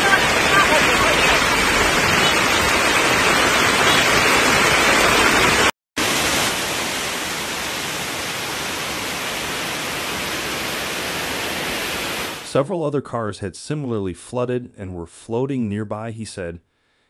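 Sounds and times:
rushing floodwater: 0.0 - 12.4
heavy rain: 0.0 - 12.5.

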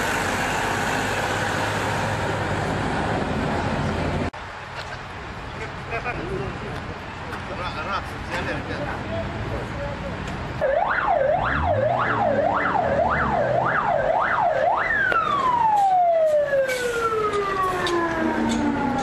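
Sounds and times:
fire engine siren: 10.6 - 19.0.

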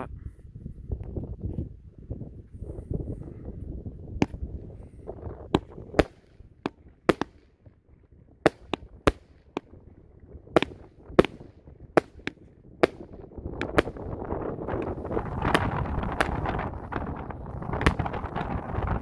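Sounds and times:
fireworks cake bangs: 5.5 - 7.7, 8.4 - 9.8, 10.4 - 19.0.

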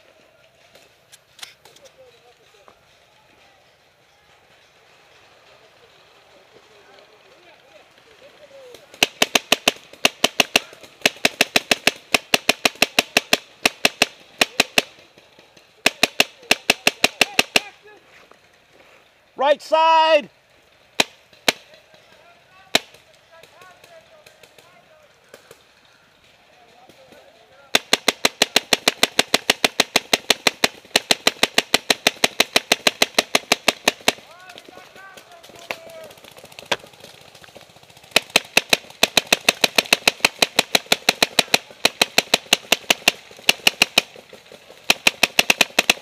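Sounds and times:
paintball marker shots: 8.9 - 15.0, 15.8 - 17.7, 21.0 - 21.7, 22.7 - 24.6, 26.9 - 36.9, 38.1 - 46.0.

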